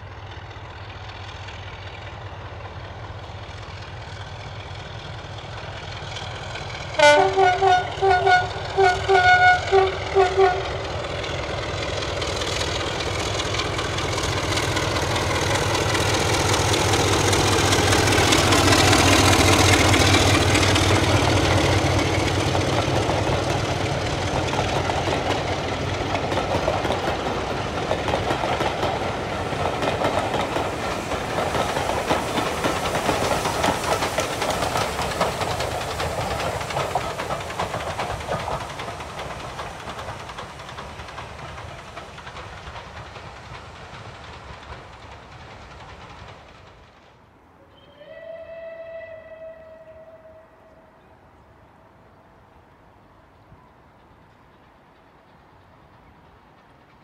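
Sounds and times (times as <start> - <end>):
diesel locomotive engine: 0.0 - 57.0
train carriages rolling past: 0.0 - 57.0
train horn toots: 7.0 - 10.8, 47.6 - 51.2.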